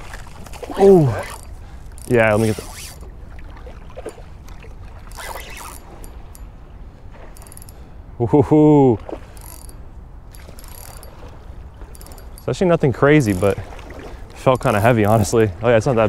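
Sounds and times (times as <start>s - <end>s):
man exclaiming: 0.8s - 1.3s
fishing reel clicking: 1.1s - 3.1s, 5.1s - 6.5s, 7.3s - 7.8s, 9.3s - 12.6s, 13.2s - 13.6s, 14.4s - 15.4s.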